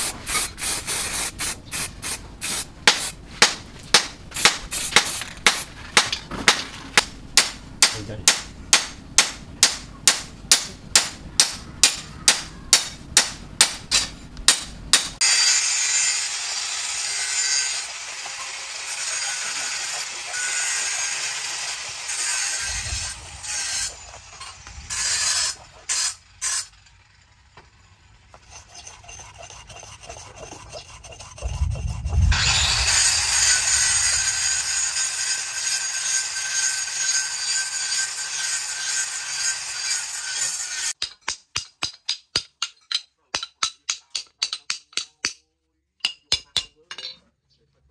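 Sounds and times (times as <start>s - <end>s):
sharp evenly spaced knocks: 2.9s - 15.2s, 40.9s - 45.4s
blade scraping on sharpening stone: 28.4s - 31.9s.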